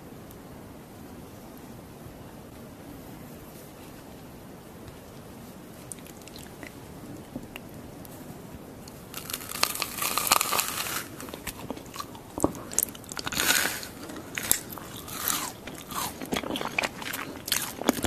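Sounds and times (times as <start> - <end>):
loud crunching with crackles: 8.9 - 18.0.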